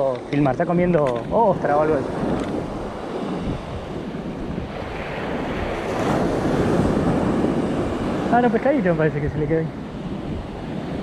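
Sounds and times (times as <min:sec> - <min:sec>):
waves breaking on shore: 0:00.0 - 0:11.0
wind buffeting microphone: 0:00.0 - 0:11.0.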